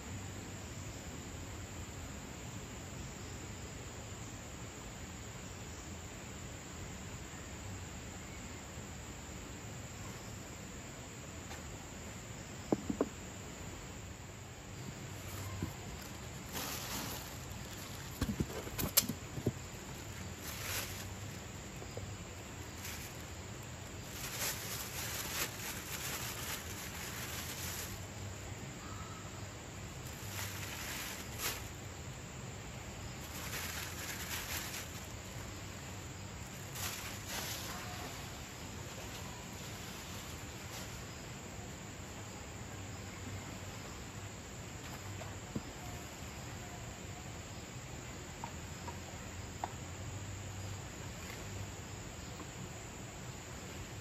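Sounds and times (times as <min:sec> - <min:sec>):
background hiss: 0:00.0 - 0:54.0
plastic bag crinkling: 0:22.8 - 0:23.3, 0:24.0 - 0:28.0.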